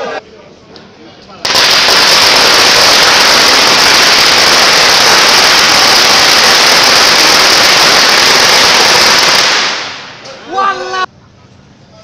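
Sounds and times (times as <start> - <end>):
firecrackers crackling: 1.4 - 10.6.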